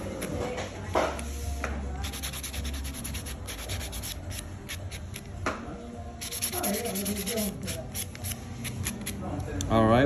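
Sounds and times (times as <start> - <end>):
nail buffer scratching nails: 2.0 - 5.4, 6.2 - 9.3.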